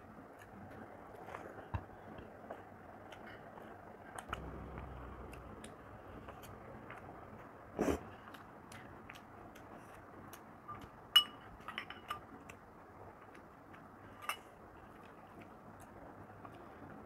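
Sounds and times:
spoon clinking against glass bowl: 11.2 - 12.3.

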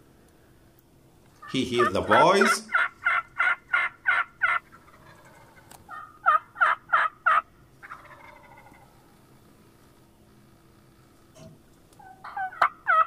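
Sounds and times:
hen turkey yelping: 1.4 - 9.1, 12.0 - 13.0.

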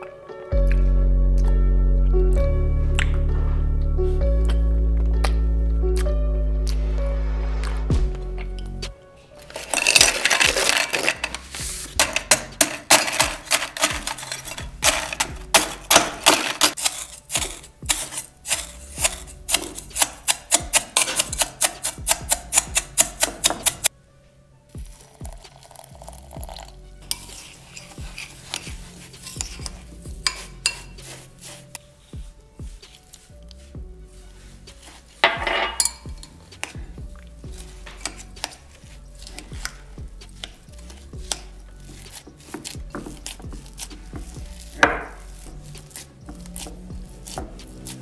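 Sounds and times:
background music: 0.0 - 48.0
spoon clinking against glass bowl: 28.5 - 31.0, 35.2 - 36.4.

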